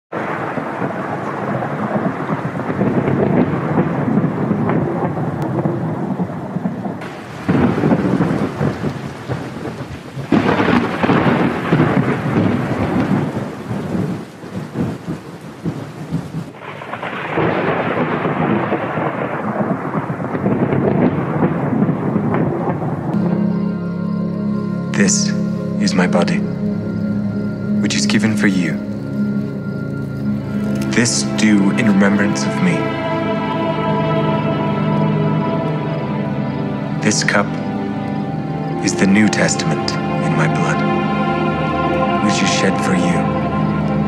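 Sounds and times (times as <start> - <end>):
rain: 0.1 - 44.0
thunder rumbling: 0.1 - 44.0
sharp thunderclaps: 0.2 - 23.7.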